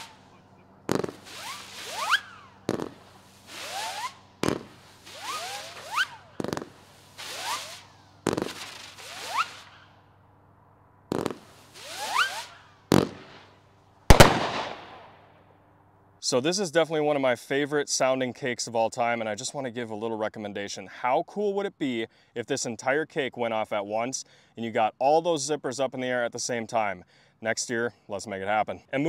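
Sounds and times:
firework hiss: 0:00.0 - 0:00.3, 0:00.9 - 0:09.9, 0:11.1 - 0:15.0
rising firework whistles: 0:00.0 - 0:10.1, 0:11.1 - 0:15.2
firework launch thumps: 0:00.9 - 0:09.9, 0:11.1 - 0:13.5, 0:14.1 - 0:15.2.

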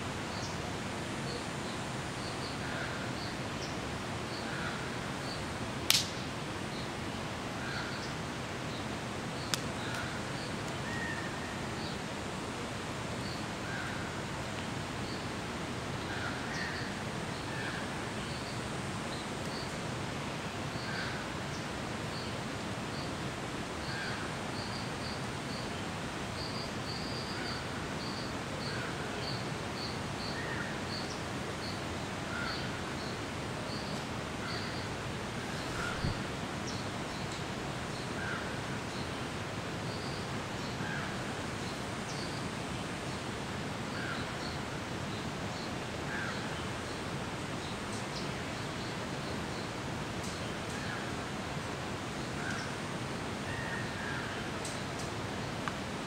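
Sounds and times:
steady hiss: 0:00.0 - 0:56.0.

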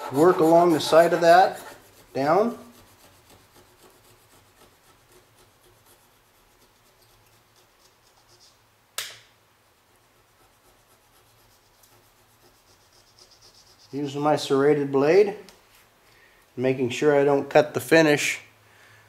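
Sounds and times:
blade scraping rubber: 0:00.0 - 0:08.2
sharp click: 0:09.0 - 0:09.3.

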